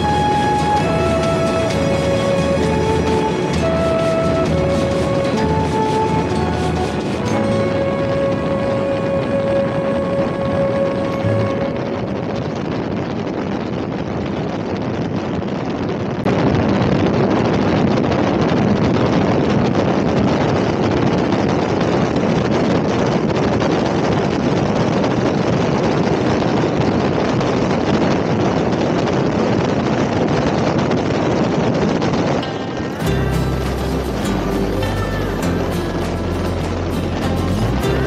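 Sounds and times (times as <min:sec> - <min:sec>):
motorcycle road noise: 0:00.0 - 0:13.2
wind rushing over microphone: 0:00.0 - 0:38.0.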